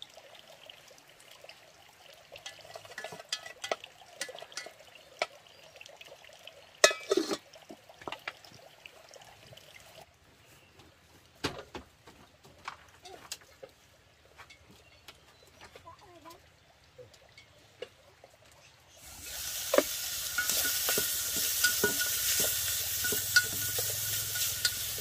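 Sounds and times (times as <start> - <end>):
metal pot lid clattering: 2.5 - 4.7, 6.8 - 7.4, 19.5 - 25.0
light clinks: 20.3 - 25.0.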